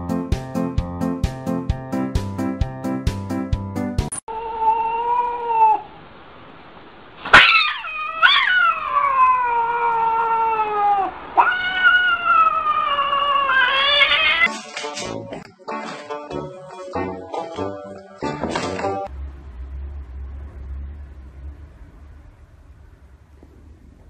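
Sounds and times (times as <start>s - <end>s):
cat yowling: 4.3s - 5.9s, 7.3s - 14.5s.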